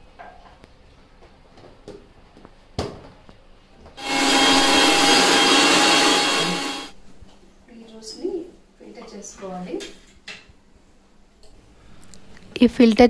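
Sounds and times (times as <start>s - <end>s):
mixer grinder whining: 4.0s - 7.0s.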